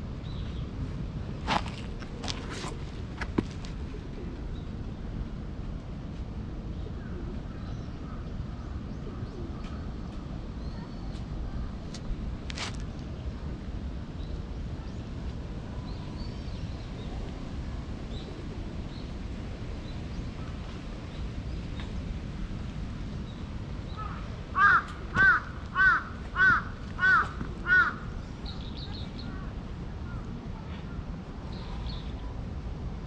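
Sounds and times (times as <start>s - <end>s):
faint outdoor background murmur: 0.0s - 33.0s
crow cawing: 24.0s - 28.1s.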